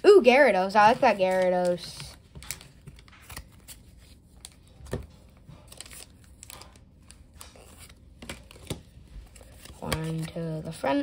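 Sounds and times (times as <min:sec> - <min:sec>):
cards shuffled: 0:00.8 - 0:10.8.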